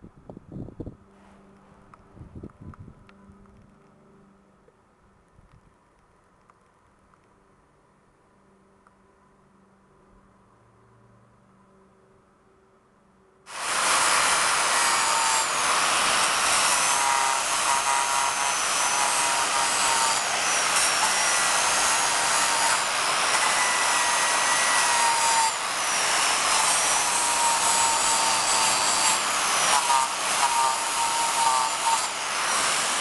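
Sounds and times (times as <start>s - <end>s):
angle grinder sanding wood: 13.5s - 33.0s.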